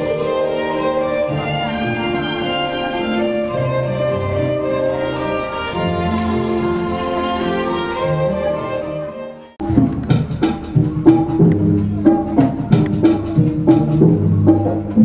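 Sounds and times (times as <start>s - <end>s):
light regular beat: 0.0s - 8.7s, 9.6s - 15.0s
slow melody of long held notes: 0.0s - 10.2s.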